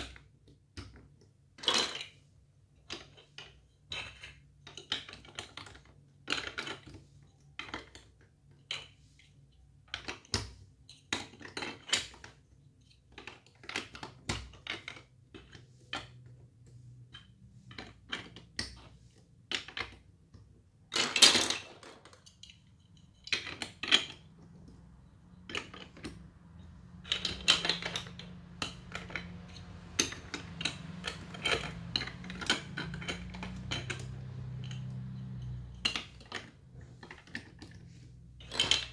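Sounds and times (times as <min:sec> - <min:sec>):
plastic bricks clicking: 0:20.9 - 0:26.3, 0:26.9 - 0:38.9.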